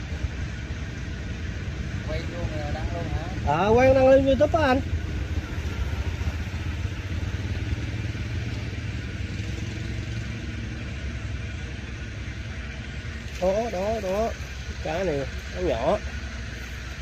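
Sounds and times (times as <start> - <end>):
small engine humming: 0.0 - 17.0.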